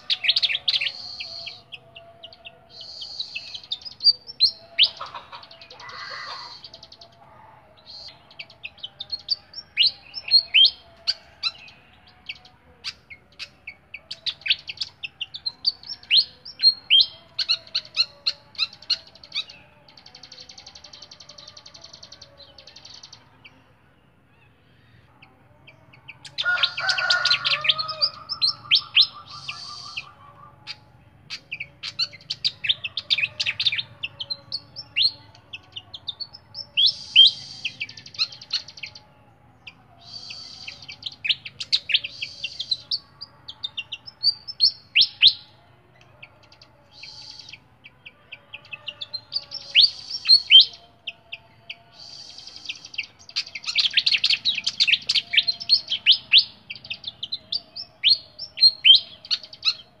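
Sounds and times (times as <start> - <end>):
songbird chirping: 0.0 - 60.0.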